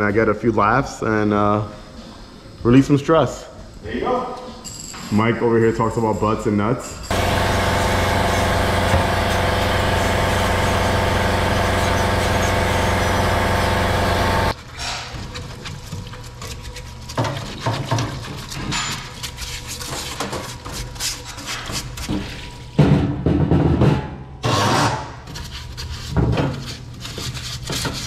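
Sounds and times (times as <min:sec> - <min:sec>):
brush scrubbing metal part: 0:07.1 - 0:14.5
machine humming: 0:07.1 - 0:14.5.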